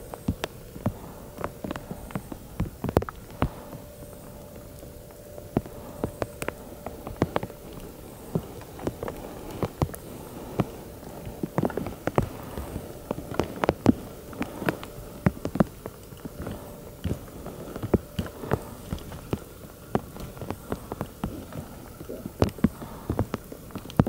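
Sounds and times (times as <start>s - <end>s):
faint steady hum: 0.0s - 24.0s
hailstones hitting rock and grass: 5.4s - 24.0s.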